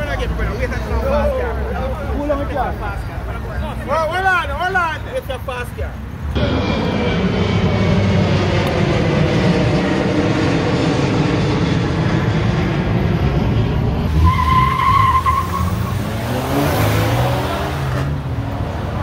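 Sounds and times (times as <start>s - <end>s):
jet airliner climbing overhead: 6.3s - 16.0s
car tyres squealing: 13.8s - 18.1s
car engine revving past: 15.2s - 19.0s.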